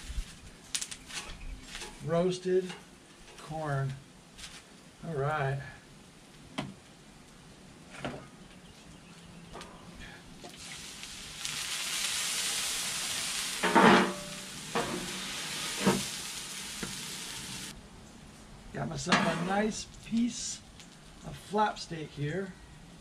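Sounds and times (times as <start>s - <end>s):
food and oil sizzling on griddle: 0.0s - 3.4s, 10.4s - 17.8s.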